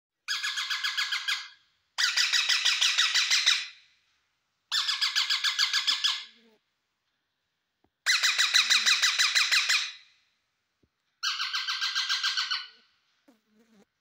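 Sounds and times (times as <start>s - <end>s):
parakeet rapid high-pitched calls: 0.3s - 3.8s, 4.7s - 6.3s, 8.1s - 10.0s, 11.2s - 12.8s.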